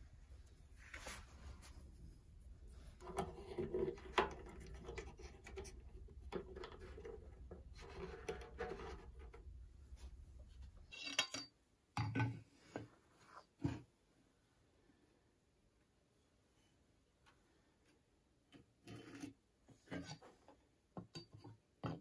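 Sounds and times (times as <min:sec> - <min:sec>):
wood scratching and rubbing on rim: 0:02.7 - 0:09.6.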